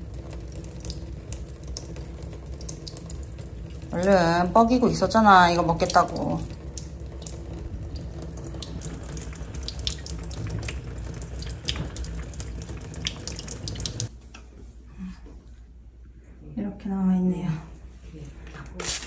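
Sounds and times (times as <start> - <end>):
tap water running into sink: 0.0 - 14.1.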